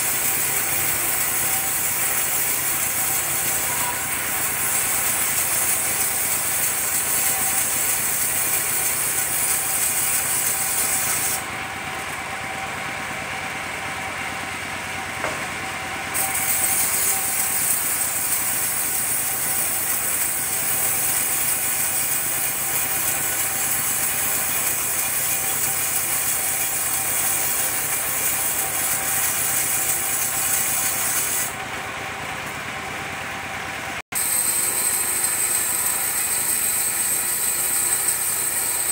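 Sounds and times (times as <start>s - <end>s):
saw blade cutting wood hiss: 0.0s - 11.4s, 16.2s - 31.6s, 34.2s - 38.9s
saw engine running: 0.0s - 38.9s.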